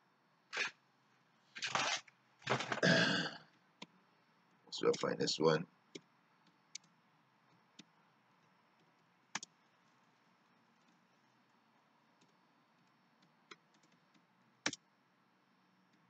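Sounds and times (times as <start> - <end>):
computer keys clicking: 8.8 - 9.6, 12.2 - 14.8.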